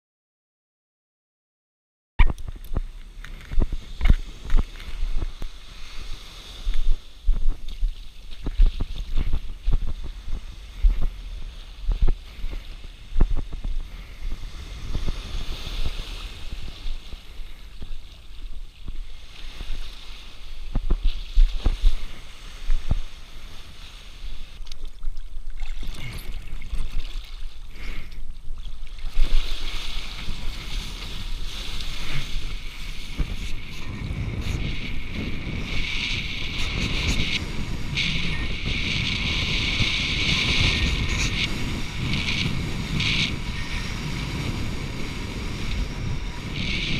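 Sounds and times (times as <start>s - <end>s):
wind buffeting microphone: 2.2s - 24.6s, 28.2s - 46.9s
water sloshing and rushing: 14.7s - 43.7s.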